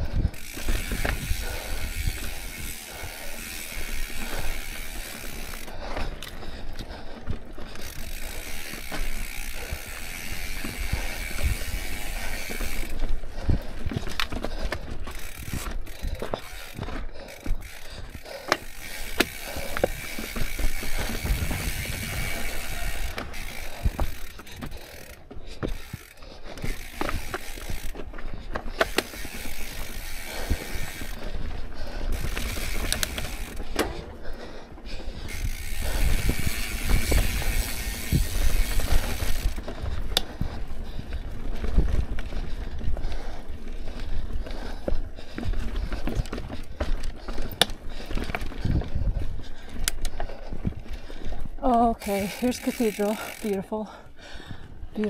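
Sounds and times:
bike chain rattling: 0.0 - 55.0
freewheel ratchet ticking: 15.1 - 28.0, 35.3 - 39.6, 51.9 - 53.7.

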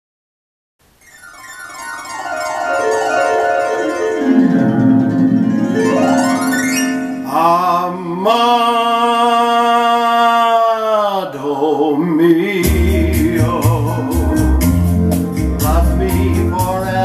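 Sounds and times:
harp glissando: 1.0 - 7.8
sustained chord: 1.4 - 8.1.

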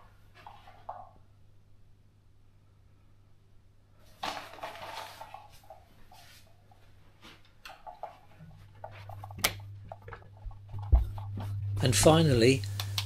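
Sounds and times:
steady low hum: 7.8 - 13.0.

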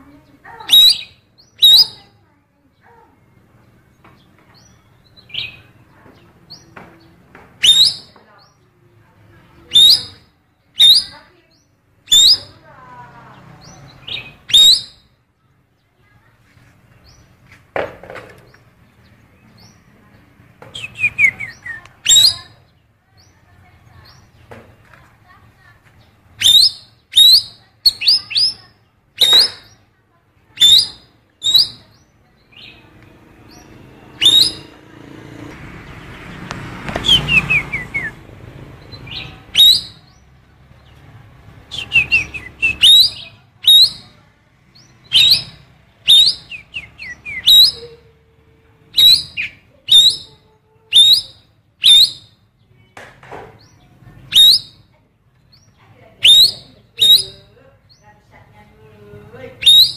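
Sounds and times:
bird giving sharp calls: 0.5 - 2.1, 7.6 - 8.2, 9.7 - 11.3, 12.1 - 12.6, 13.6 - 15.1, 20.7 - 22.6, 26.3 - 29.8, 30.6 - 31.9, 33.5 - 34.8, 36.9 - 38.2, 38.9 - 40.2, 41.6 - 44.2, 45.0 - 48.1, 48.9 - 52.4, 54.2 - 54.9, 56.2 - 57.6, 59.6 - 59.9.

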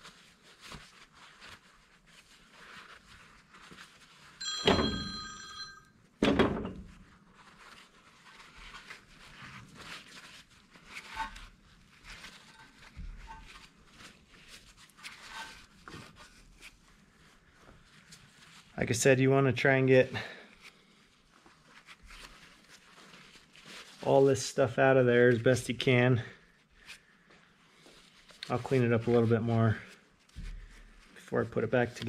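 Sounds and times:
towel rubbing and rustling: 0.0 - 5.8, 6.8 - 19.0, 20.5 - 32.0
metal clank ringing: 4.4 - 5.7.

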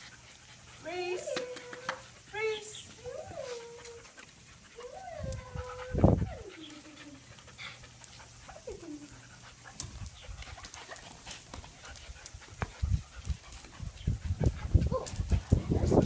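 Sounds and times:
puppy whimpering: 4.8 - 7.3.

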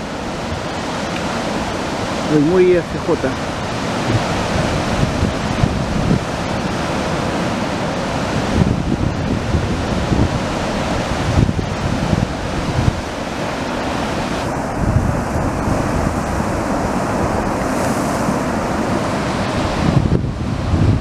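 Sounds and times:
surf breaking over rocks: 0.0 - 21.0.

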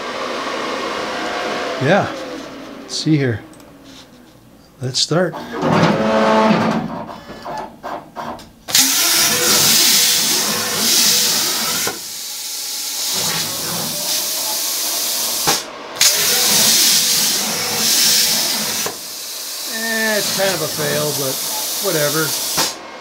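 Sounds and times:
plasma cutter arc hissing: 8.7 - 22.8.

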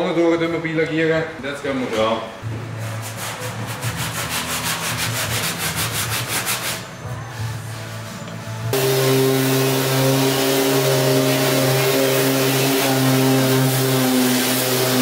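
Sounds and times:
orbital sander running: 8.7 - 15.0.

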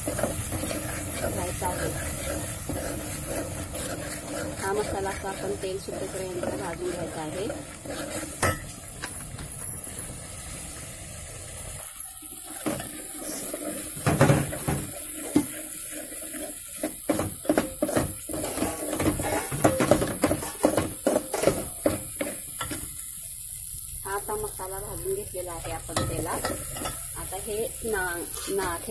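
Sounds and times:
metal spoon scraping a metal pot: 0.0 - 9.2, 12.7 - 21.5, 28.2 - 28.9
light sizzle of frying: 0.0 - 28.9.

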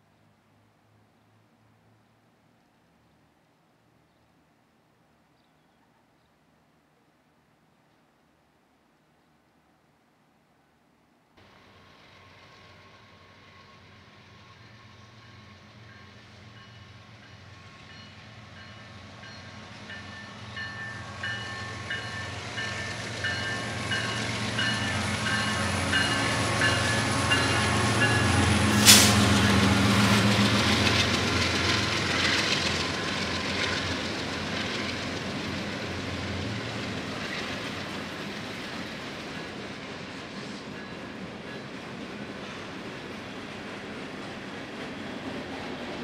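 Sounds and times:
diesel locomotive engine rumble: 11.4 - 46.0
train bell ringing: 15.2 - 28.5
wheels rattling on rail: 15.2 - 46.0.

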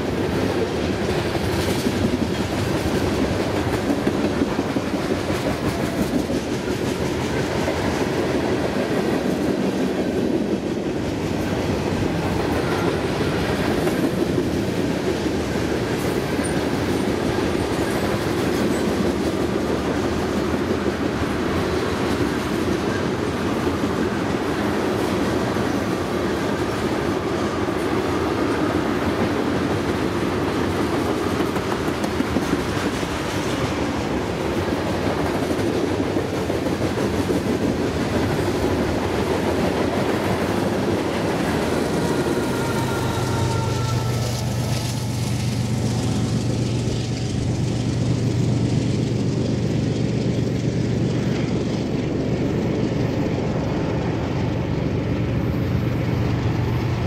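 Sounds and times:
train wheels rumbling on rails: 0.0 - 57.0.

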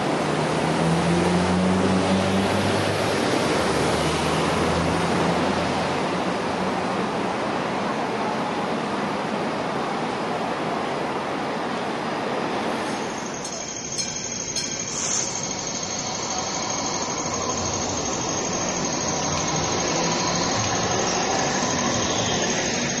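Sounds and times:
light rail wheels rumbling on rails: 1.8 - 23.0
high-pitched wheel squeal: 12.8 - 23.0.

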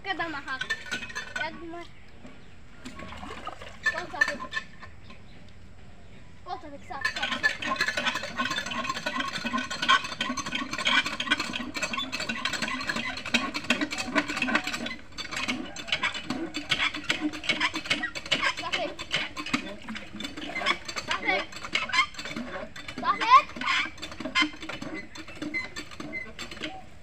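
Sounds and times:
water splashing into hand pump: 0.0 - 5.2, 6.9 - 27.0.

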